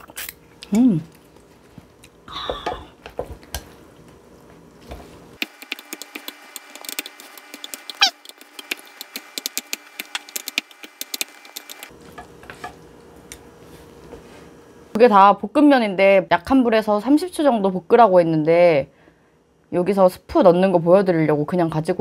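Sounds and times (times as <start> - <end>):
utensils clicking and scraping cookware: 5.5 - 12.8.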